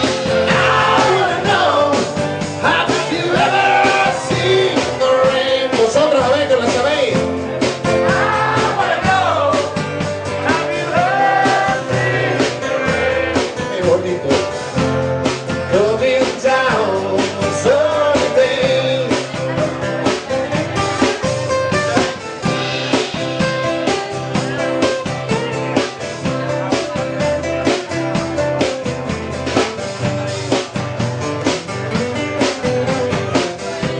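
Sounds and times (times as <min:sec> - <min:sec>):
live rock band playing: 0:00.0 - 0:33.9
man singing into microphone: 0:00.3 - 0:07.0, 0:10.4 - 0:14.0, 0:15.7 - 0:19.6.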